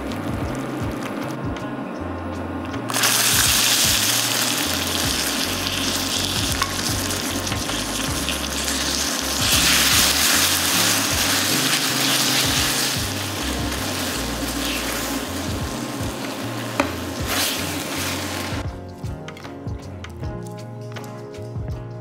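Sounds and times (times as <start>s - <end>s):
berries sizzling in hot sugar: 2.9s - 18.6s.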